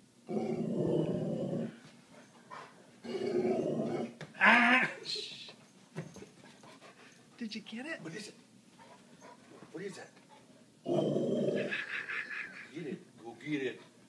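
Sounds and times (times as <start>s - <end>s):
dog growling: 0.2s - 1.8s, 3.0s - 4.2s, 10.8s - 12.0s.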